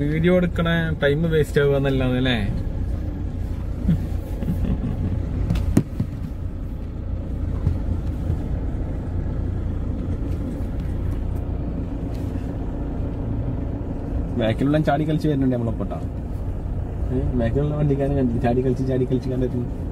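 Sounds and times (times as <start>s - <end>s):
car driving on rough road: 0.0s - 19.9s
car jolting knock: 5.4s - 6.6s.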